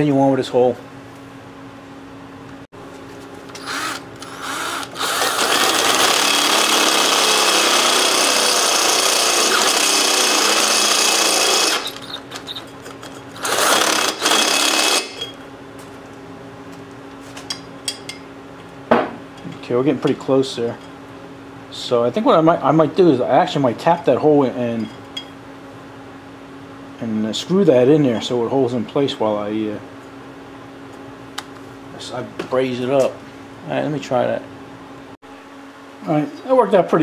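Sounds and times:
electric drill boring through metal: 3.5s - 12.6s, 13.4s - 15.4s.

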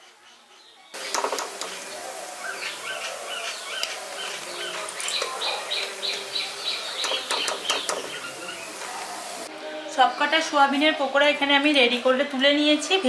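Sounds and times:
bird chirping: 0.1s - 10.6s
food deep-frying in oil: 1.0s - 9.5s.

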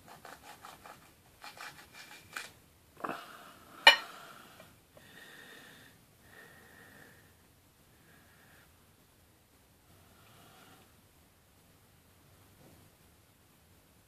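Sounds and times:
knife cutting chilli pod: 0.0s - 2.6s.

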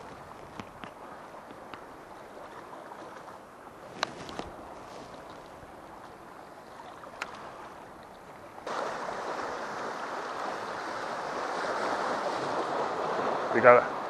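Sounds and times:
sea waves washing against rocks: 8.5s - 14.0s.

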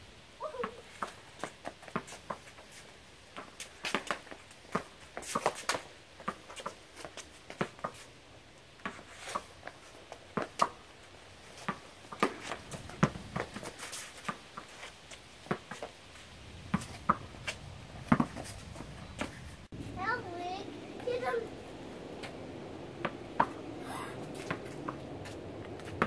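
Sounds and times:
tennis ball pocks on concrete: 8.8s - 10.8s, 11.6s - 16.0s, 16.7s - 19.4s.

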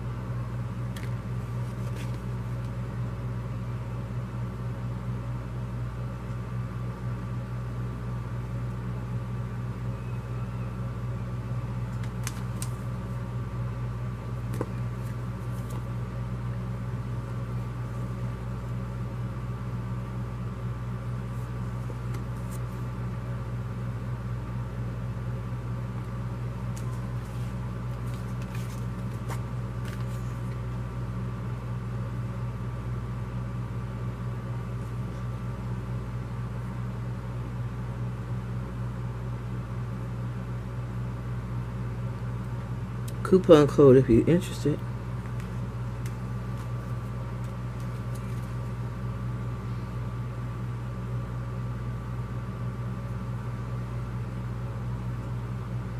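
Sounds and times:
low mechanical hum: 0.0s - 55.9s
paper cards clicking and rustling: 0.9s - 2.8s, 11.9s - 12.9s, 14.4s - 15.9s, 21.9s - 22.8s, 26.7s - 30.6s, 45.2s - 48.7s.

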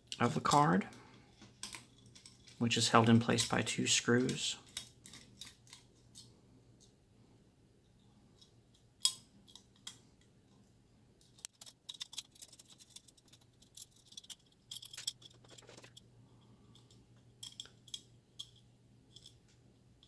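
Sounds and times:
screws clicking and scraping on metal: 4.2s - 6.3s, 11.2s - 16.0s.

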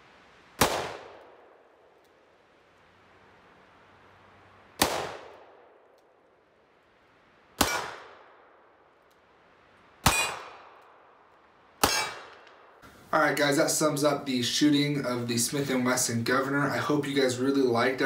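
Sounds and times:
revolver gunshots: 0.6s - 2.0s, 4.8s - 5.8s, 7.5s - 8.8s, 10.0s - 12.8s.

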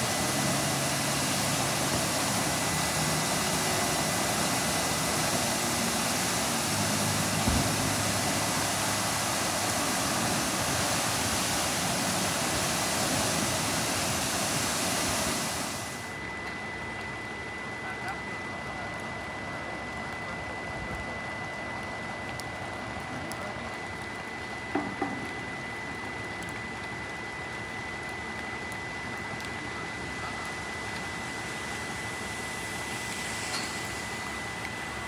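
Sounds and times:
water jet spraying: 0.0s - 16.1s, 30.2s - 35.0s.

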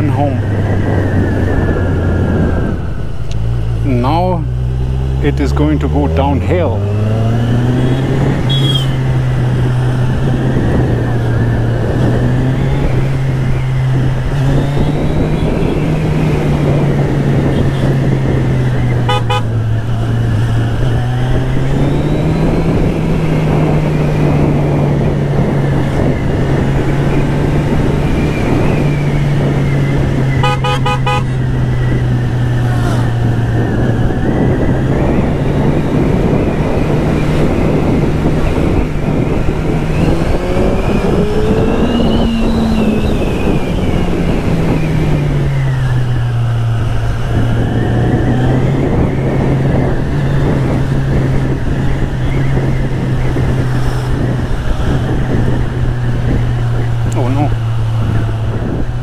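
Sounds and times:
wind and road noise: 0.0s - 59.0s
horn short toots: 7.9s - 9.0s, 19.0s - 19.6s, 30.4s - 31.4s.

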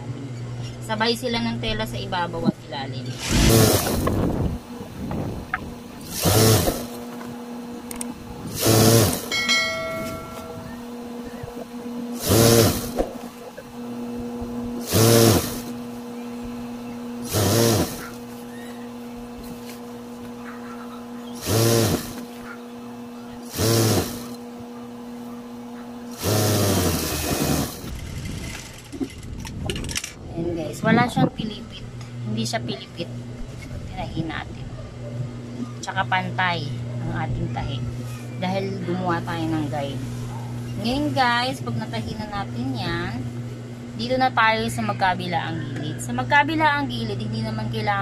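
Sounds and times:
steady low hum: 0.0s - 48.0s
sewing machine stitching: 3.2s - 4.1s, 6.0s - 7.0s, 8.5s - 9.3s, 12.2s - 13.0s, 14.8s - 15.8s, 17.2s - 18.1s, 21.4s - 22.2s, 23.5s - 24.4s, 26.1s - 29.2s.

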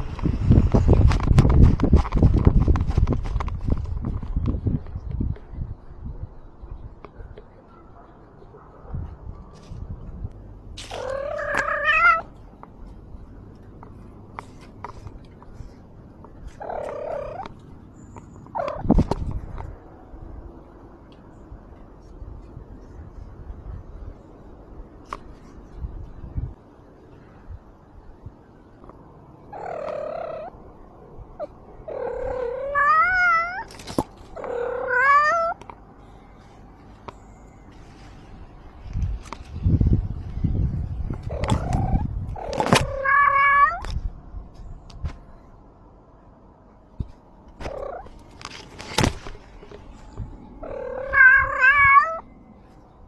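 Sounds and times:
cat meowing: 10.9s - 12.3s, 31.4s - 33.7s, 34.4s - 35.6s, 41.2s - 43.9s, 50.6s - 52.2s.

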